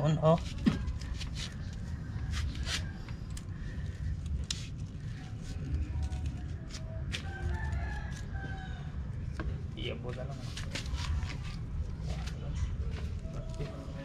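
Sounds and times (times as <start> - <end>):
rooster crowing faintly: 6.8 - 9.3.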